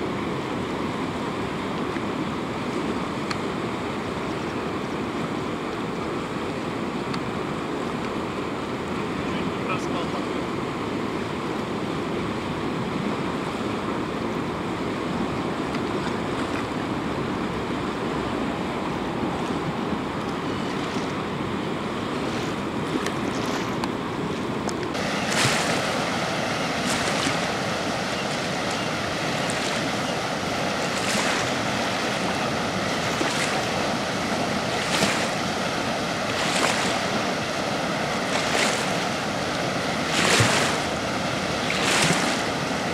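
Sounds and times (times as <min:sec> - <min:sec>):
water rushing: 0:00.0 - 0:42.9
wind on microphone: 0:11.0 - 0:42.9.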